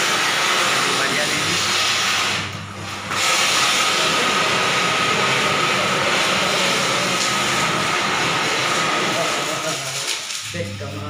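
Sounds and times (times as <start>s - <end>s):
firecracker sparks hissing: 3.1s - 10.5s.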